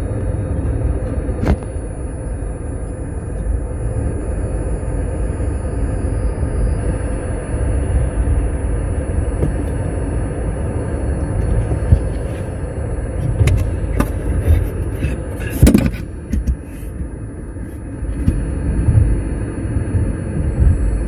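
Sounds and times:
car road rumble: 0.0s - 2.2s, 7.9s - 21.0s.

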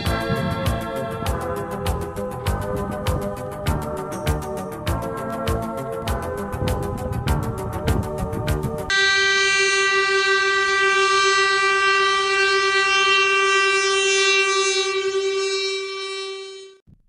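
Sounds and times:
music: 0.0s - 11.2s
train horn long steady note: 8.9s - 16.8s.

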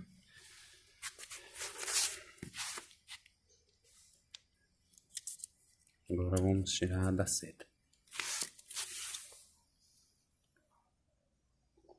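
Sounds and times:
masking tape peeling off: 8.1s - 9.3s.

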